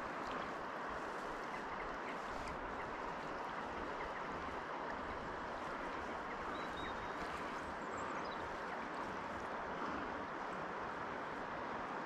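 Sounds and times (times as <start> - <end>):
river water running over pebbles: 0.0 - 12.0.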